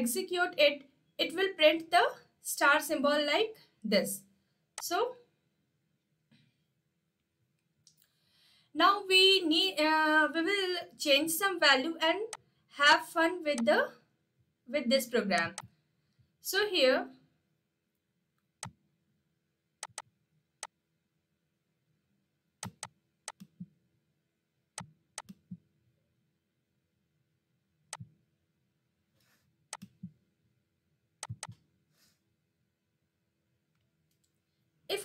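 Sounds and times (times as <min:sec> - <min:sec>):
mouse clicks: 0:15.4 - 0:15.7, 0:19.8 - 0:20.1, 0:22.6 - 0:23.7, 0:24.8 - 0:25.6, 0:29.7 - 0:30.1, 0:31.2 - 0:31.6
keyboard keys clicking: 0:19.8 - 0:20.0, 0:22.6 - 0:23.6, 0:31.2 - 0:31.6.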